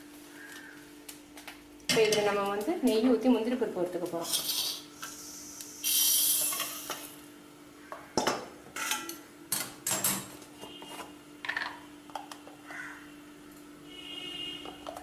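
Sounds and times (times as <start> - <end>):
short hiss: 4.4 - 7.1.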